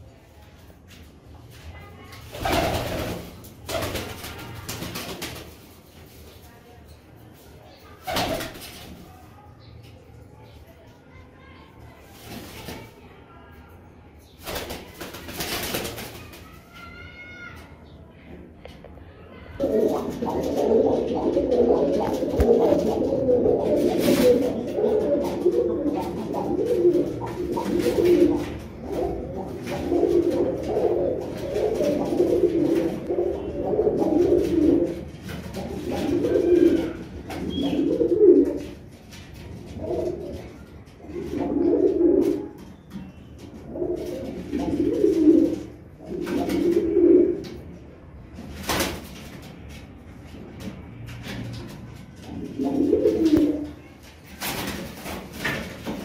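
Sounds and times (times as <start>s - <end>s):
pigeons cooing: 19.6s - 38.8s, 39.7s - 42.6s, 43.6s - 47.6s, 52.3s - 53.8s.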